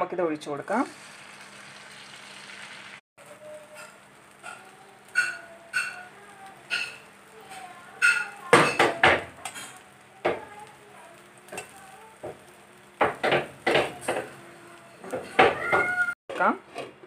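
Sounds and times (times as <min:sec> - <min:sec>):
spoon scraping frying pan: 0:03.6 - 0:09.9.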